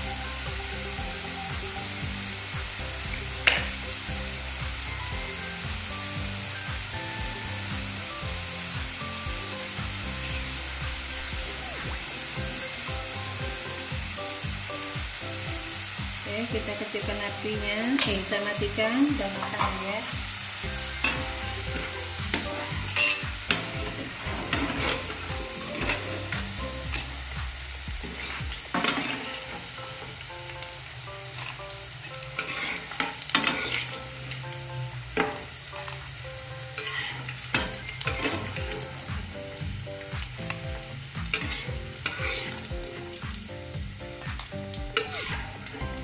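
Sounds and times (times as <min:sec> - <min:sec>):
fries sizzling in hot oil: 0:00.0 - 0:46.0
metal spatulas scraping a pan: 0:20.9 - 0:27.1, 0:28.0 - 0:29.7, 0:31.4 - 0:34.4, 0:36.7 - 0:38.9, 0:41.3 - 0:42.7, 0:45.0 - 0:45.7.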